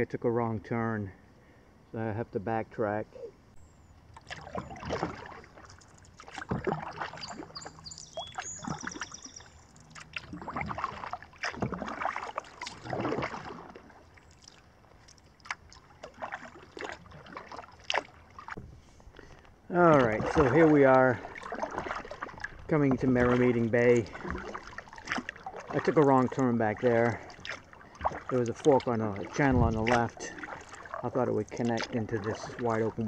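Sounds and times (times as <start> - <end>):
paddle splashing in water: 4.0 - 33.0
water dripping: 4.1 - 18.6
paddle knocks: 21.3 - 26.0, 27.3 - 31.0.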